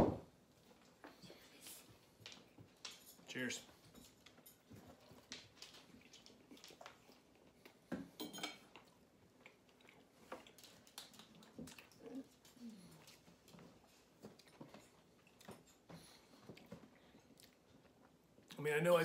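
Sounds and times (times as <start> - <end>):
metal fork clinking on plate: 8.2 - 8.6.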